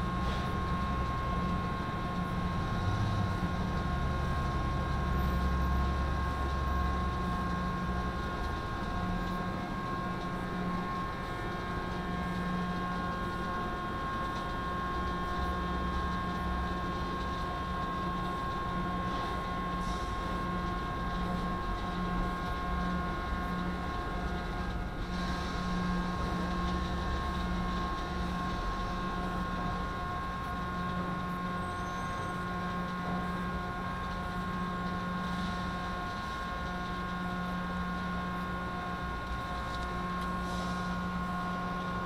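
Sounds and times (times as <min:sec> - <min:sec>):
heavy vehicle engine running: 0:00.0 - 0:13.5, 0:38.7 - 0:42.0.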